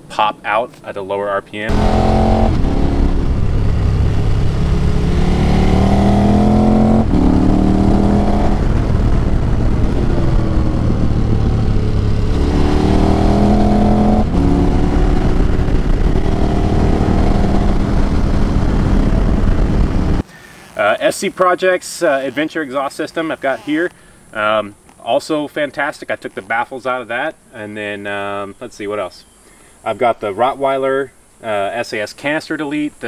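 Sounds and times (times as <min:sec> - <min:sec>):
wind and road noise: 0:00.0 - 0:21.0
motorcycle engine accelerating: 0:01.7 - 0:20.2.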